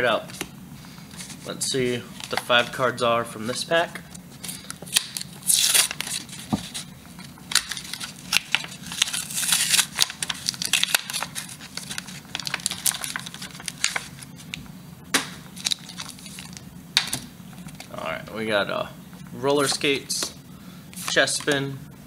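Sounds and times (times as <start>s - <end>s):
cards being handled: 1.1s - 3.7s, 4.4s - 14.6s, 21.0s - 21.6s
paper wrapper tearing and crinkling: 4.9s - 6.4s, 7.5s - 14.3s, 15.6s - 16.6s.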